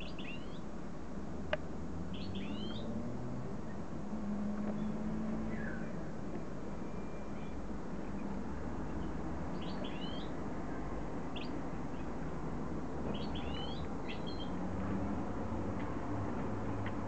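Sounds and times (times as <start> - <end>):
finch twittering calls: 0.0 - 0.6, 2.2 - 2.9, 9.6 - 10.3, 11.3 - 12.1, 13.1 - 14.6.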